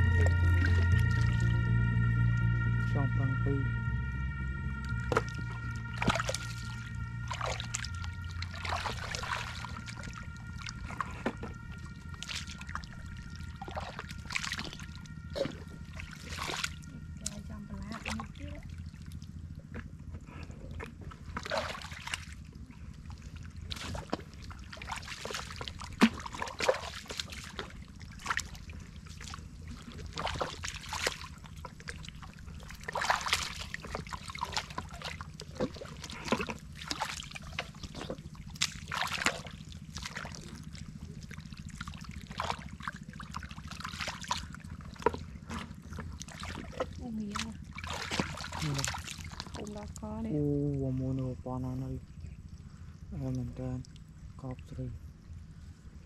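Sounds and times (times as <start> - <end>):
boots squelching through mud: 32.9 - 40.5, 43.8 - 49.6.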